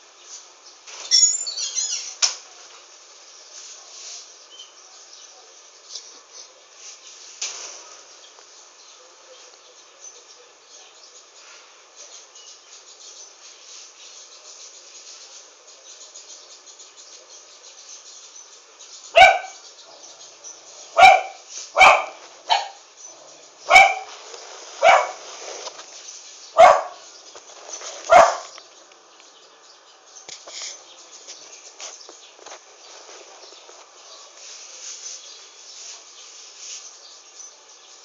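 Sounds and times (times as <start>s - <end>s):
faint background hiss: 0.0s - 38.0s
dog barking: 19.2s - 19.6s, 21.0s - 22.8s, 23.7s - 24.1s, 24.8s - 25.2s, 26.6s - 27.0s, 28.1s - 28.5s.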